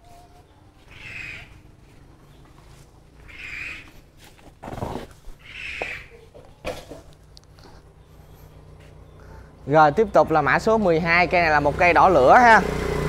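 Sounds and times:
animal harsh calls: 0.8s - 1.8s, 3.2s - 6.4s.

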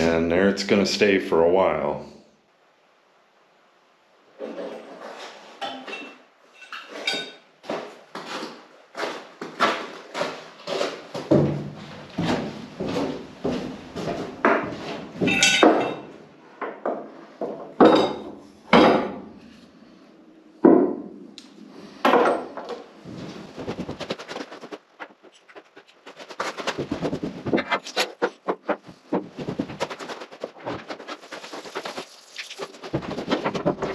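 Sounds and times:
hard objects knocking and clanking: 14.4s - 19.2s, 32.8s - 33.9s.

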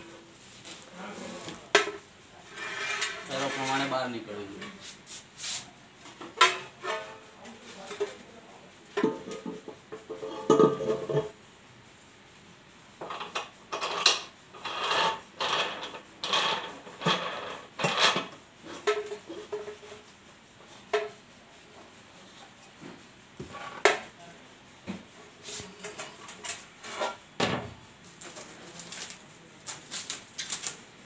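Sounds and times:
scraping strokes: 0.0s - 5.8s, 13.1s - 20.9s, 25.3s - 27.2s.

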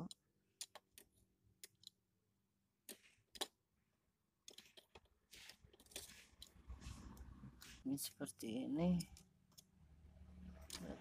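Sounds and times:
faint handling clicks and scrapes: 4.4s - 8.1s.

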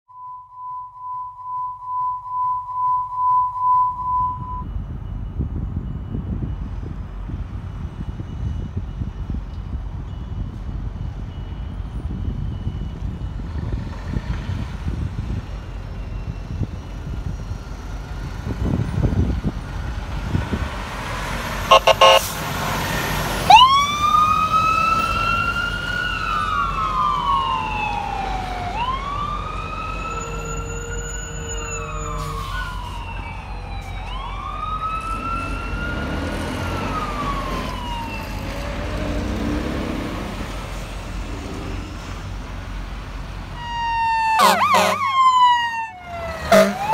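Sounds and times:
fire engine diesel engine: 4.5s - 46.9s
siren wailing: 21.7s - 22.3s, 23.4s - 38.5s, 43.6s - 46.9s
loud horn blasts: 21.7s - 22.4s, 44.3s - 45.2s, 46.4s - 46.9s.

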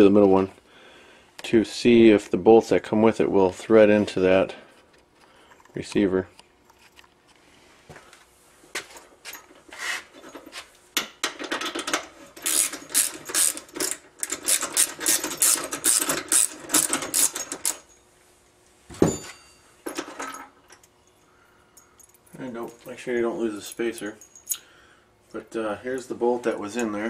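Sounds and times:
ratchet wrench clicking: 12.4s - 17.9s.

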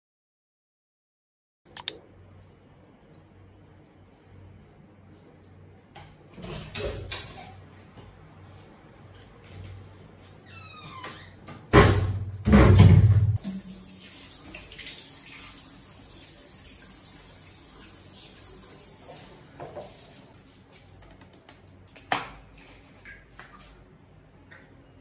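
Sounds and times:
sharp click: 1.7s - 2.0s
water running from a tap: 13.4s - 19.3s.

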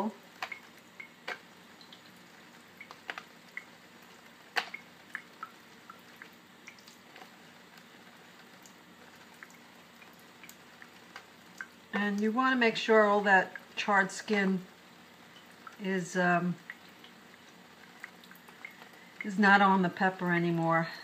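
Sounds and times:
water drips: 0.0s - 21.0s
wet squishes and clicks: 0.4s - 2.2s, 2.8s - 3.8s, 4.5s - 7.9s.

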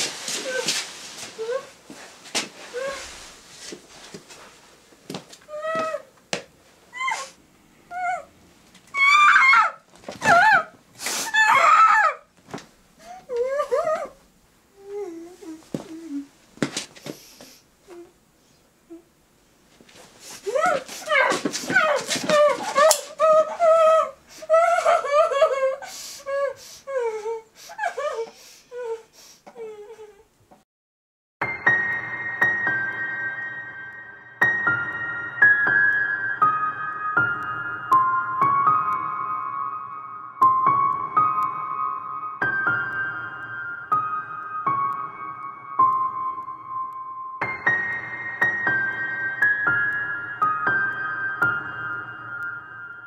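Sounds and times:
woman's shrill wavering cries: 5.5s - 6.1s, 6.9s - 8.3s, 9.0s - 12.3s, 20.5s - 28.3s.

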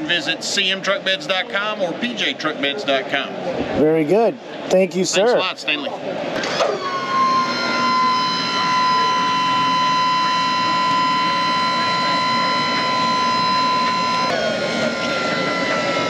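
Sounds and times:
exhibition hall crowd noise: 0.0s - 16.0s
sustained high tones whining: 6.4s - 16.0s.

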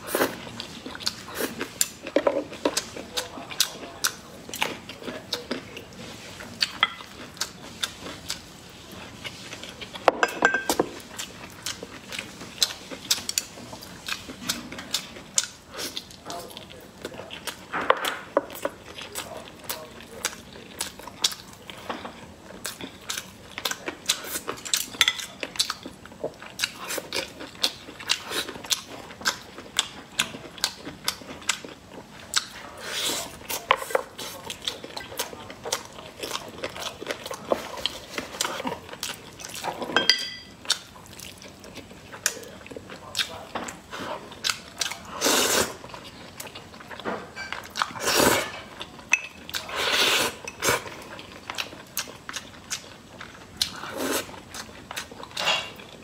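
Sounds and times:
chewing and lip-smacking: 0.2s - 10.0s, 11.0s - 39.9s, 40.6s - 45.1s, 50.4s - 56.0s
slurping: 43.9s - 45.9s, 47.8s - 48.5s, 49.5s - 51.1s.

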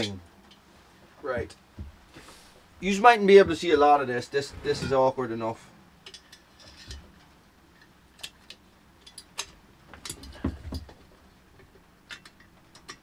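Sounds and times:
small metal clicks and ticks: 12.1s - 13.0s.

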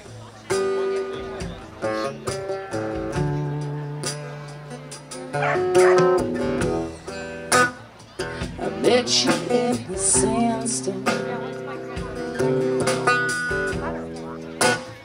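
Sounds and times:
acoustic guitar strummed and picked: 0.0s - 15.0s
person singing: 8.2s - 11.6s.

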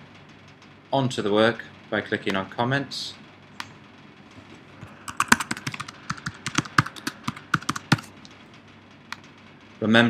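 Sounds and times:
computer keyboard typing: 4.8s - 8.2s.

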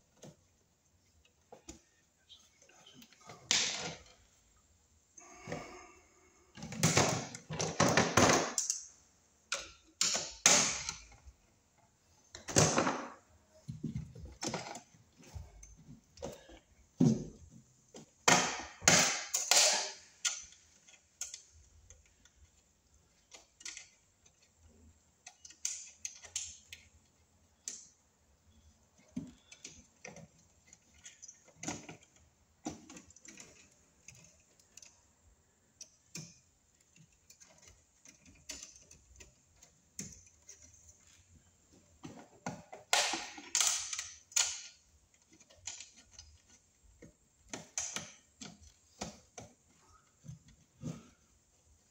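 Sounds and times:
cable rustling and scraping: 20.1s - 42.7s, 43.3s - 51.9s.

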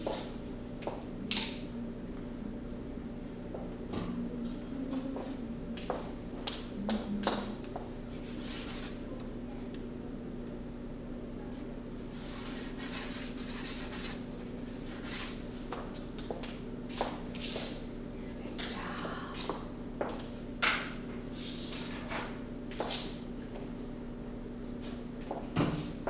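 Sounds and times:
paintbrush scratching on cardboard: 12.1s - 15.4s.

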